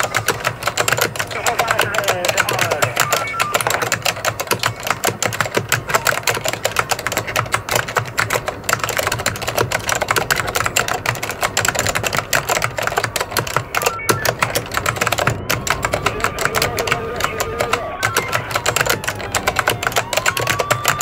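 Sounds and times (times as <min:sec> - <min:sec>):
keyboard typing: 0:00.0 - 0:21.0.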